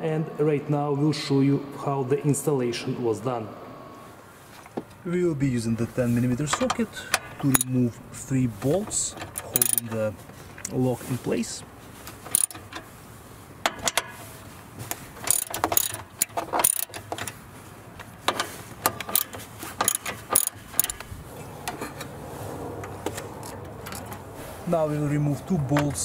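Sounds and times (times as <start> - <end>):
socket ratchet clicking: 7.1 - 7.8, 9.2 - 10.0, 12.2 - 12.8, 15.2 - 17.4, 18.0 - 21.1
metal clinks: 12.2 - 12.9, 15.2 - 17.4, 18.9 - 21.0.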